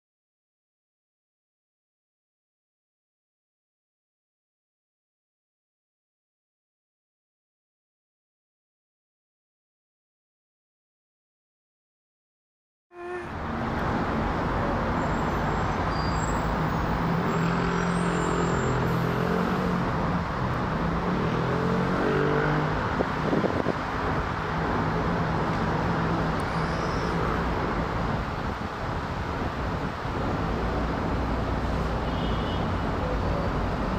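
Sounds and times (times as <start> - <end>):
road traffic noise: 12.9 - 33.9.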